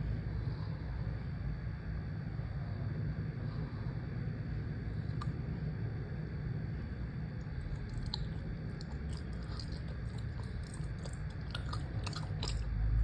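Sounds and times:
steady low hum: 0.0 - 13.0
chewing gummy candy: 7.4 - 13.0.

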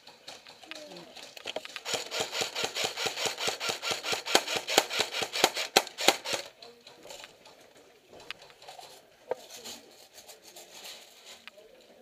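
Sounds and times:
airsoft gunfire: 1.7 - 6.5.

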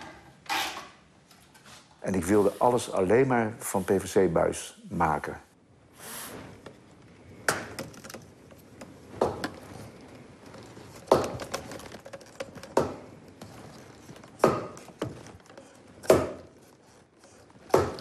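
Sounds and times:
plastic tubing knocking: 11.0 - 15.4.

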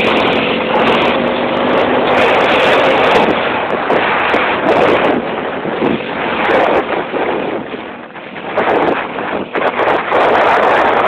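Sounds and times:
motorcycle engine: 0.0 - 11.0
wind rush on microphone: 0.0 - 11.0.

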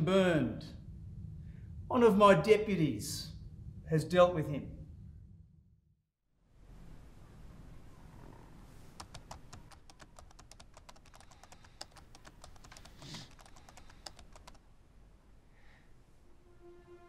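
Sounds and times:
typing on keyboard: 9.0 - 14.6.

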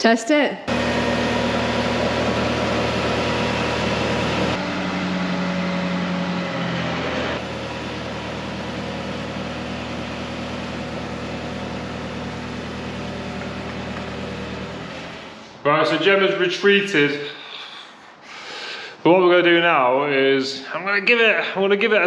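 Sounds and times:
forklift engine running: 0.7 - 15.8.

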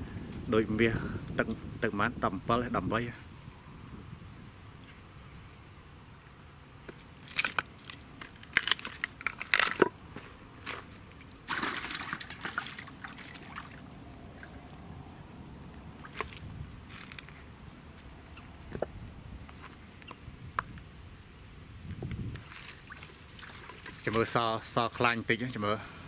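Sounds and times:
water splashing and sloshing: 7.2 - 14.9, 15.7 - 17.4, 22.3 - 24.7.

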